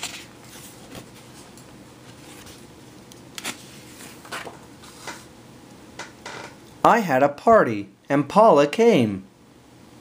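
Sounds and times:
paper rustling: 0:00.0 - 0:02.7, 0:03.4 - 0:05.3
book pages turning: 0:00.0 - 0:05.3.

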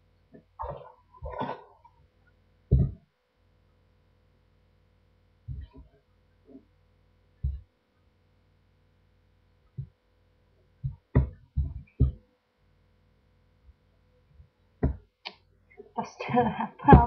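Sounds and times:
faint steady hum: 0:00.0 - 0:17.0
dull thuds and knocks: 0:02.7 - 0:03.0, 0:05.5 - 0:05.9, 0:07.4 - 0:07.7, 0:10.8 - 0:12.2, 0:14.8 - 0:15.1.

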